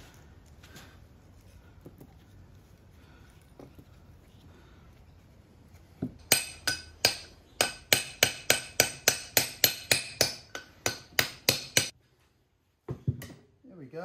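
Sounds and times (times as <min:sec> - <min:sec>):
hammer striking steel parts: 0:06.2 - 0:11.9.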